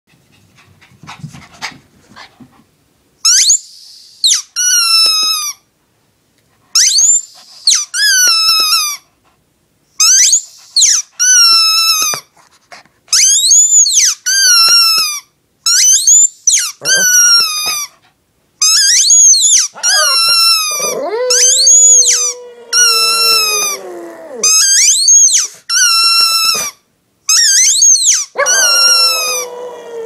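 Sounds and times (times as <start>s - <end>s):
rubber squeaky toy squeaking: 4.3s - 5.6s, 6.8s - 9.0s, 10.0s - 12.2s, 13.1s - 17.9s, 18.6s - 23.6s, 24.4s - 29.4s
dog howling: 19.8s - 24.8s, 28.3s - 30.0s.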